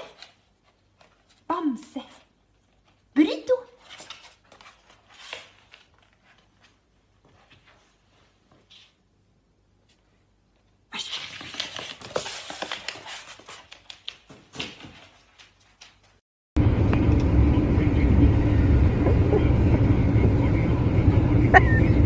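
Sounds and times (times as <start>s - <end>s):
dog claws clicking on wooden floor: 11.2s - 16.2s
car cabin road rumble: 16.6s - 22.0s.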